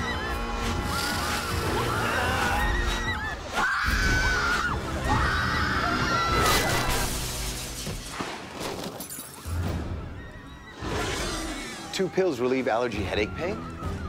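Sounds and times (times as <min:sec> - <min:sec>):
high screams: 0:00.0 - 0:06.9
background music: 0:00.0 - 0:08.5, 0:09.2 - 0:14.0.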